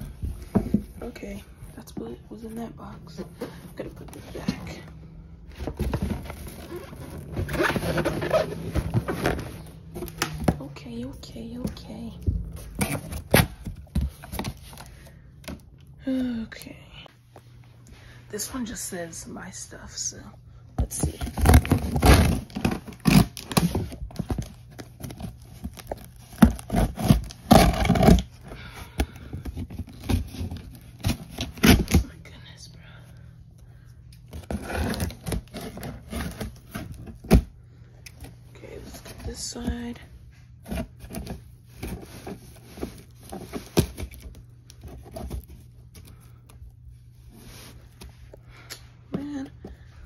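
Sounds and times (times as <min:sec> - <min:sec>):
cardboard box rustling and scraping: 0:05.5 - 0:14.9, 0:20.9 - 0:28.4, 0:34.3 - 0:37.5, 0:40.6 - 0:46.2.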